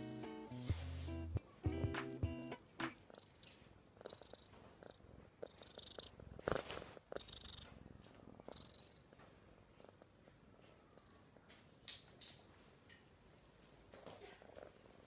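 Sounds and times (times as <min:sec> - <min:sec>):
cat purring: 0:02.9 - 0:11.4, 0:14.0 - 0:15.0
fur rustling against phone: 0:06.4 - 0:07.0.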